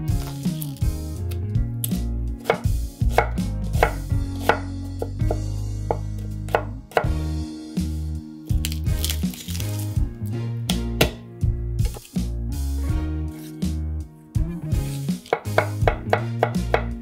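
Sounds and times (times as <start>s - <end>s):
knife chopping on wooden board: 1.9s - 7.2s, 10.7s - 11.2s, 11.8s - 12.1s, 14.8s - 17.0s.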